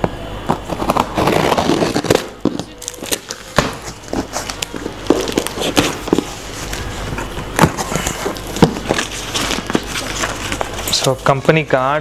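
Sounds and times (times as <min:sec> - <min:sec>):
scissors slitting packing tape: 0:00.8 - 0:06.2.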